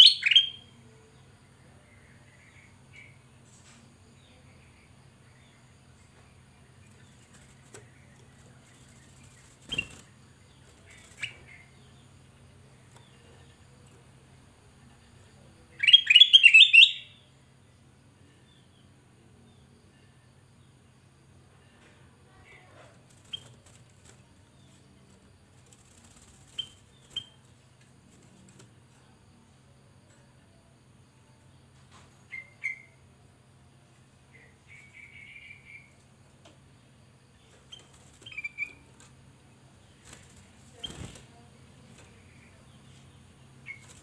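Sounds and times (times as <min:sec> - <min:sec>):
bird chirping: 0:00.0 - 0:03.2, 0:04.2 - 0:13.8, 0:14.9 - 0:17.3, 0:25.8 - 0:27.5, 0:32.2 - 0:33.0, 0:34.3 - 0:36.0, 0:37.2 - 0:39.1, 0:40.0 - 0:44.0.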